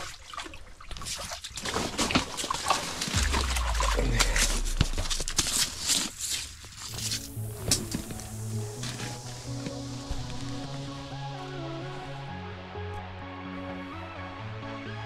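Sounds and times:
low rumble: 3.2 - 6.3.

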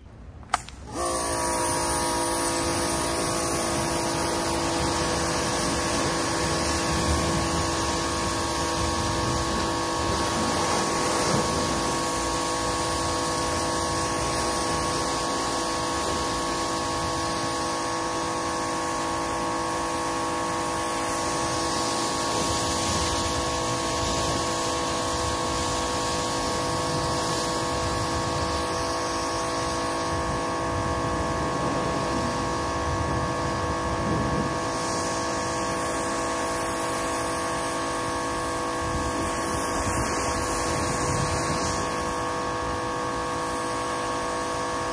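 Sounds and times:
pressure washer spray hissing: 0.5 - 44.9
washer motor humming: 1.0 - 17.1.

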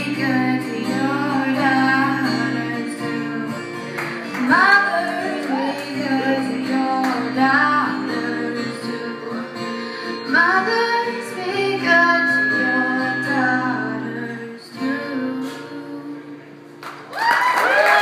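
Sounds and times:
woman singing: 0.0 - 16.5
acoustic guitar: 0.0 - 17.7
applause and cheers: 16.8 - 18.0.

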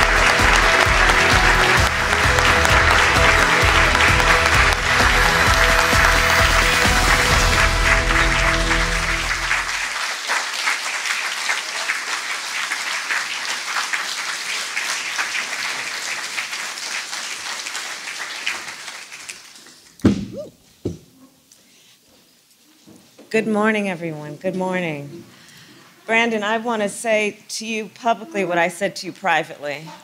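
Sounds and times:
walk-on music: 0.0 - 9.8
audience applauding: 0.0 - 19.6
short thump: 20.0 - 21.0.

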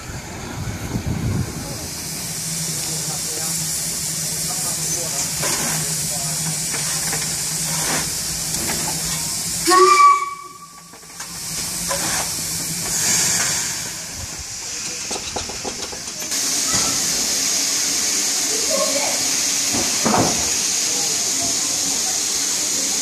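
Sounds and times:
steam hissing: 0.0 - 23.0
short locomotive whistle toot: 9.6 - 10.8.

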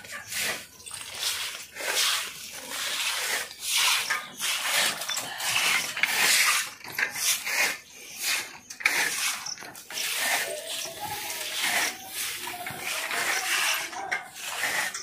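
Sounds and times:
broom sweeping water on floor: 0.1 - 15.0.

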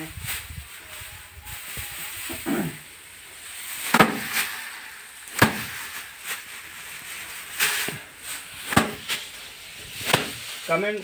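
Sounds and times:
straw rustling: 0.1 - 11.0
rice stalks thwacking on wood: 3.8 - 6.5, 8.6 - 10.6.

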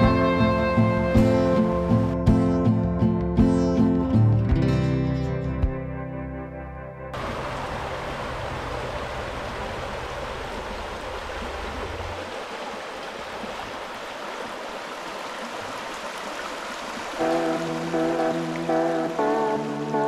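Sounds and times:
background music: 0.0 - 7.2, 17.2 - 20.0
brook rushing over stones: 7.2 - 17.3.

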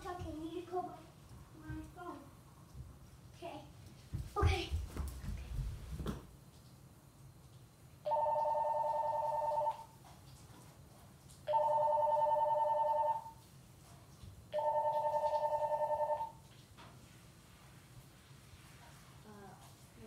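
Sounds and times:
telephone ringing: 8.1 - 9.9, 11.5 - 13.4, 14.6 - 16.4.

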